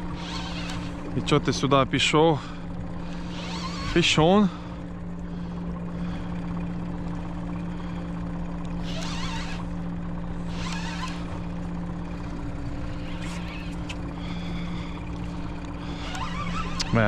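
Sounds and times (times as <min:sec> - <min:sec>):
choppy water splashing: 0:00.0 - 0:17.0
outboard motor humming: 0:00.0 - 0:17.0.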